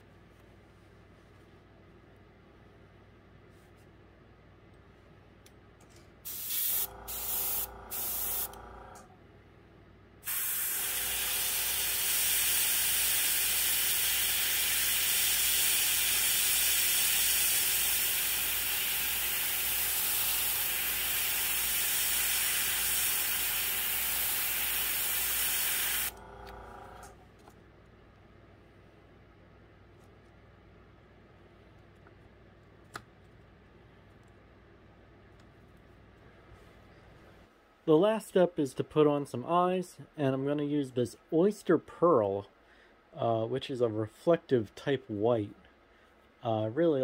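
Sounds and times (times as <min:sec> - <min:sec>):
airbrush spraying hiss: 0:06.3 - 0:08.7, 0:10.2 - 0:26.2.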